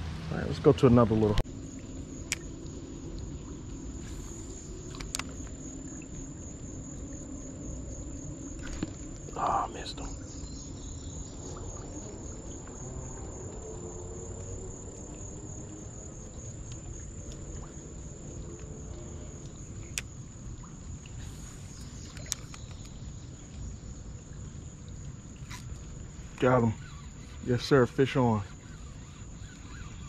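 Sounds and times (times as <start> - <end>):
low rumbling background: 0.0 - 30.0
insects trilling: 0.3 - 30.0.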